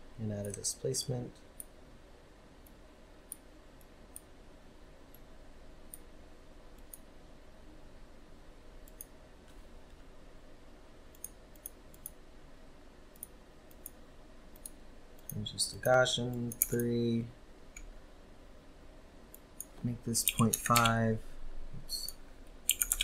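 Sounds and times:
faint steady hum: 0.0 - 23.0
computer mouse clicking: 8.8 - 9.2, 11.1 - 12.2, 13.1 - 15.4, 16.3 - 17.0, 19.3 - 21.0, 22.7 - 23.0.

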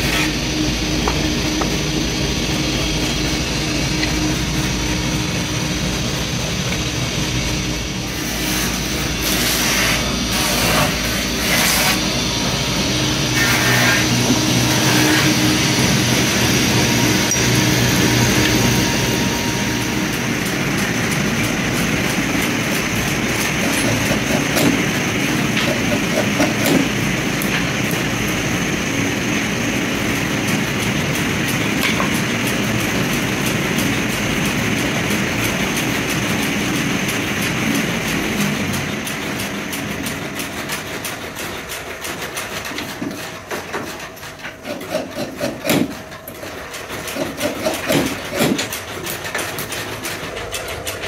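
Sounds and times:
machinery running: 0.0 - 51.0
low hum: 0.3 - 9.3, 10.1 - 23.8.

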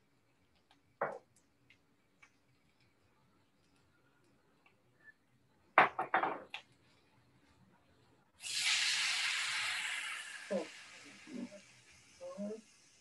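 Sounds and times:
water sizzling in hot wok: 8.4 - 13.0.

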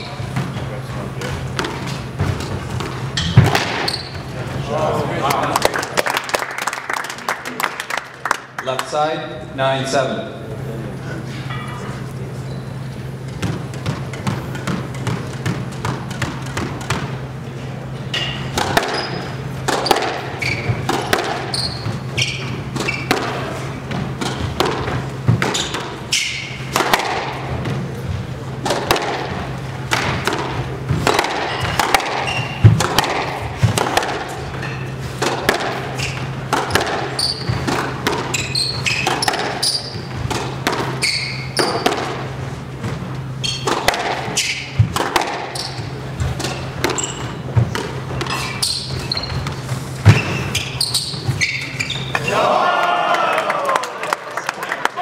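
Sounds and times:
sneakers squeaking on floor: 0.0 - 4.6, 11.5 - 52.3
squash ball smacking: 1.2 - 4.1, 18.2 - 21.9, 22.7 - 28.0, 28.6 - 43.0, 43.6 - 50.4.

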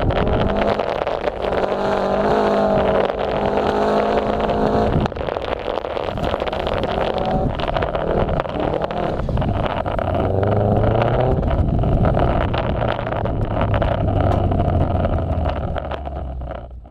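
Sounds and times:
car engine driving: 0.0 - 16.9.

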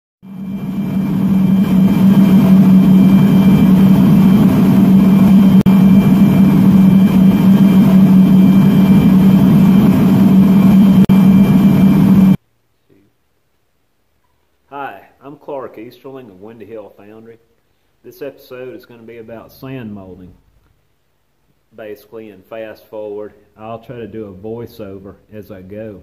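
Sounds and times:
loud mechanical drone: 0.3 - 12.4.

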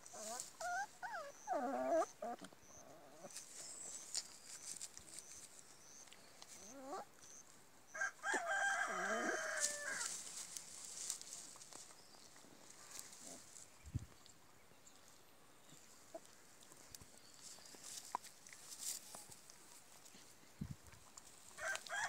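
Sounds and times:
puppies whimpering and squeaking: 0.0 - 7.5.

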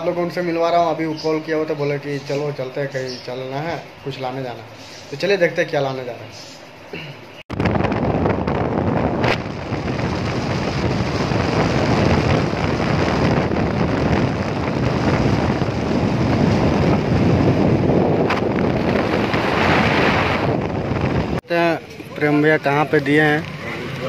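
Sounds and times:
vehicle road noise: 0.0 - 24.0
wind rushing over microphone: 7.5 - 24.0.

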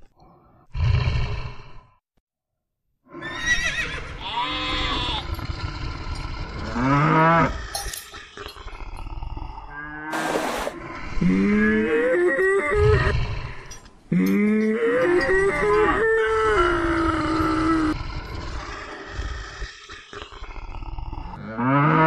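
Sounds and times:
cows mooing: 4.2 - 7.8, 9.7 - 18.0, 21.4 - 22.0.

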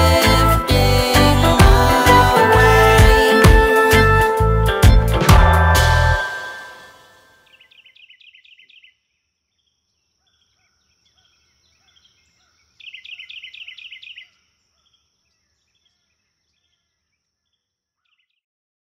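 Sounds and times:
songbird chirping: 6.2 - 18.4
faint calls of other birds: 7.6 - 18.4.

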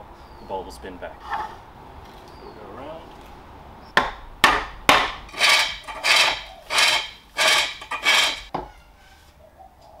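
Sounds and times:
sharp wooden knock: 4.0 - 5.2
turning tool rasping into wood: 5.3 - 8.5.

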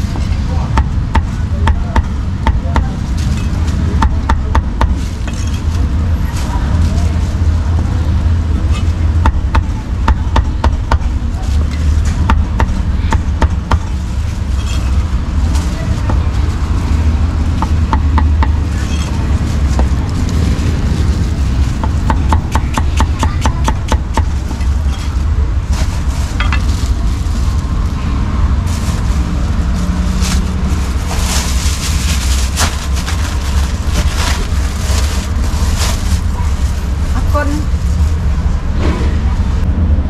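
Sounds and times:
plastic bags rustling: 4.7 - 10.0, 11.0 - 22.1, 24.0 - 38.6
low rumble: 24.0 - 40.0.

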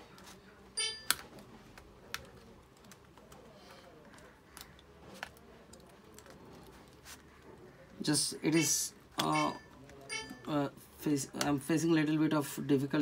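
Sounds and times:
tweezers clicking on plastic: 4.1 - 6.3.

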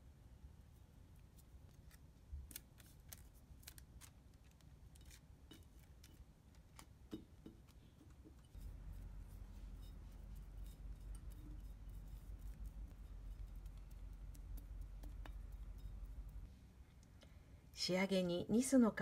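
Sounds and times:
low hum: 8.4 - 17.7.

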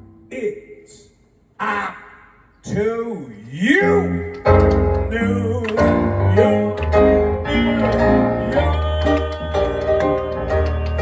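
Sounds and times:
bass line: 3.7 - 11.0
keyboard chords: 3.9 - 11.0
person singing into microphone: 5.1 - 11.0.

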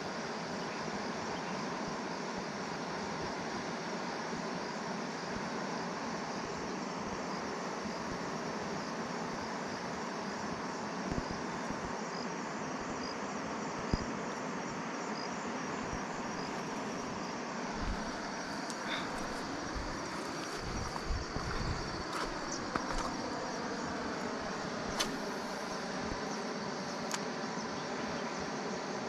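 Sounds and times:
faint insect chirps: 0.0 - 29.0
forest stream rushing: 16.2 - 27.3.

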